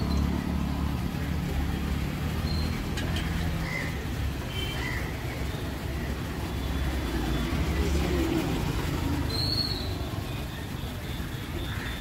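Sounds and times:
bird chirps: 9.3 - 10.7.

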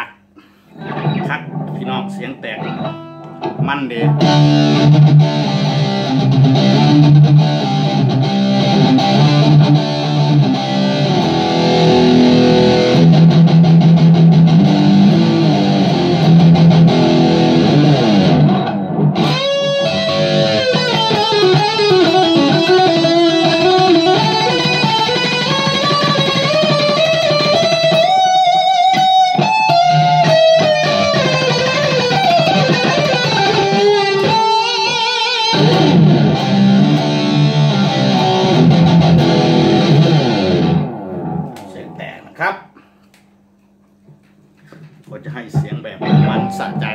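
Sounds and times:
distorted electric guitar: 0.0 - 42.4, 45.6 - 46.9.

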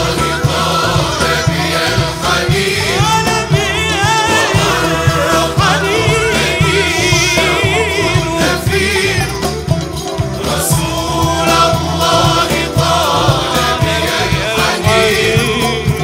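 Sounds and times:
frame drums and tambourines: 0.0 - 16.0
man singing ornamented lines: 2.8 - 9.6, 10.4 - 16.0.

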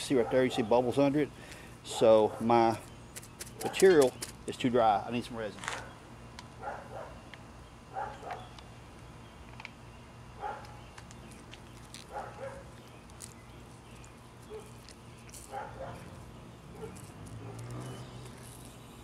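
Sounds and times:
dog barking: 0.2 - 0.7, 1.9 - 2.6, 6.6 - 7.2, 7.9 - 8.4, 10.4 - 10.8, 12.1 - 12.7, 15.5 - 17.8.

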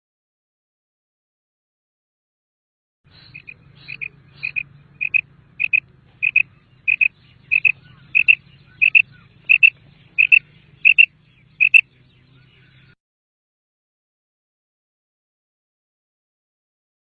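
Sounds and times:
quail calling: 3.1 - 13.0.

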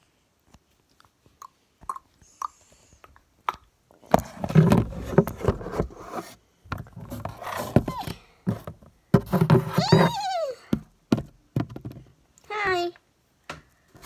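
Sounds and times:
scraping and rubbing on microphone: 4.2 - 10.3.

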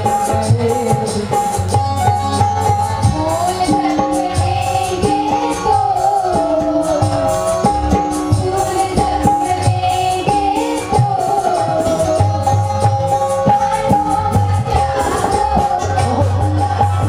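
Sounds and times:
hand drum beats: 0.0 - 17.0
harmonium melody: 0.0 - 17.0
voices singing: 2.0 - 17.0.

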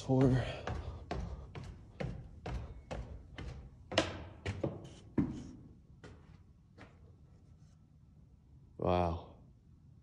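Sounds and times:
footsteps on wooden stairs: 0.0 - 7.1.

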